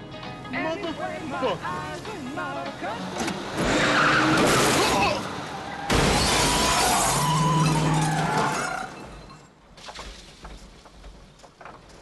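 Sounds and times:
car crash glass and metal: 0:03.6 - 0:05.2, 0:05.8 - 0:09.5.

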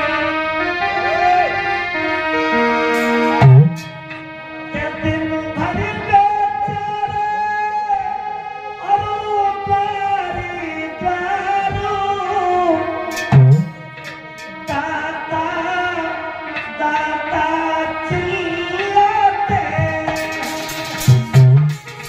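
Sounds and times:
man singing into a microphone: 0:00.0 - 0:02.6, 0:04.4 - 0:21.4
hand drums striking: 0:03.0 - 0:04.2, 0:13.1 - 0:14.8, 0:19.8 - 0:22.0.

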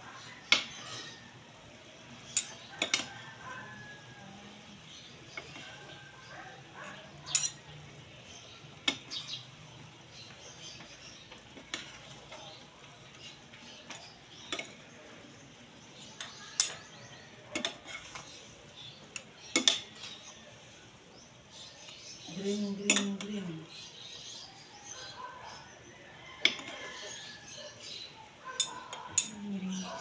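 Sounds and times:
faint sizzle: 0:00.0 - 0:30.0
metal utensils scraping a pan: 0:07.1 - 0:07.8, 0:11.6 - 0:12.6, 0:16.2 - 0:20.3, 0:28.6 - 0:29.4.

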